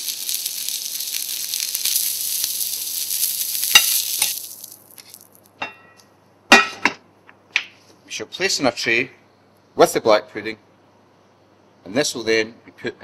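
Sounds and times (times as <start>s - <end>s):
meat sizzling in hot oil: 0.0s - 5.5s.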